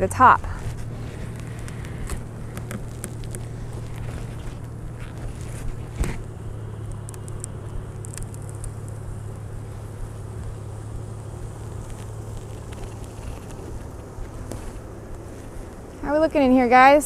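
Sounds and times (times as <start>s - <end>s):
steady low hum: 0.0s - 17.0s
light clicks and cracks: 0.6s - 16.0s.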